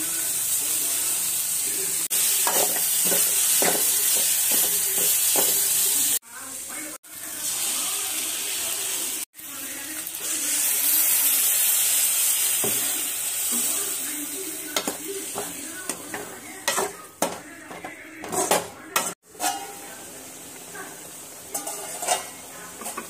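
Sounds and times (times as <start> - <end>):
beans sizzling in a pan: 0.0 - 17.3, 18.4 - 23.0
metal ladle knocking pan: 14.8 - 19.8, 21.5 - 23.0.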